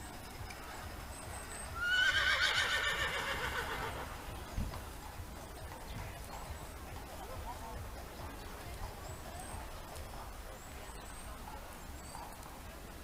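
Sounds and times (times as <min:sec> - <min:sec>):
horse neighing: 0:01.8 - 0:04.3.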